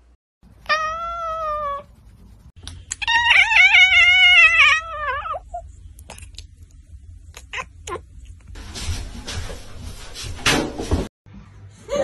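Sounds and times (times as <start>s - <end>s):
cats meowing: 3.0s - 5.6s.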